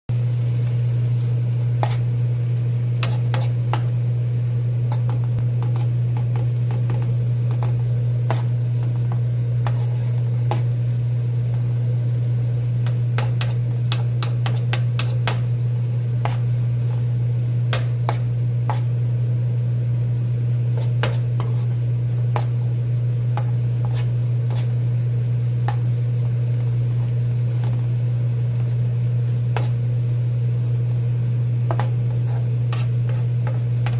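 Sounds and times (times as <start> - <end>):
food sizzling: 0.1 - 33.9
steady low hum: 0.1 - 33.9
spoon scraping frying pan: 1.8 - 2.1, 3.0 - 4.0, 4.8 - 10.8, 12.8 - 15.6, 16.2 - 19.0, 20.5 - 24.9, 25.6 - 28.0, 29.3 - 30.0, 31.5 - 33.9.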